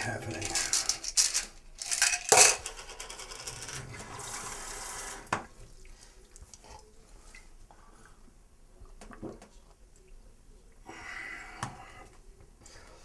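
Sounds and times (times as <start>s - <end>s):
small hard objects clinking: 0.3s - 3.6s
tap water running: 3.5s - 6.5s.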